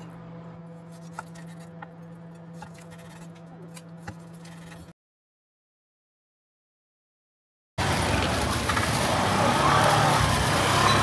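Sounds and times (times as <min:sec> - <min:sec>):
steady low hum: 0:00.0 - 0:04.9.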